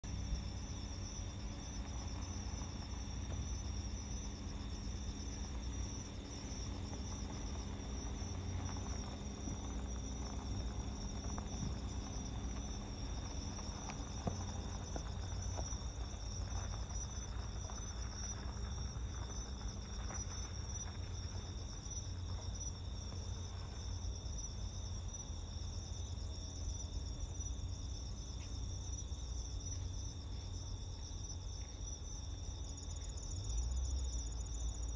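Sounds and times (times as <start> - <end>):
crickets chirring: 0.0 - 34.9
low rumble: 0.1 - 23.9.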